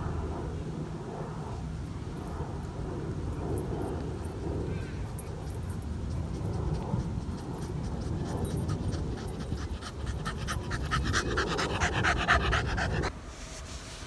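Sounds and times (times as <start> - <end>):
dog panting: 5.0 - 13.1.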